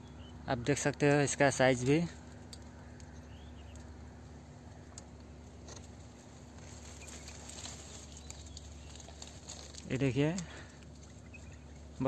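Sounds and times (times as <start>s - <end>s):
low hiss and hum: 0.0s - 12.0s
light ticks: 4.8s - 5.3s.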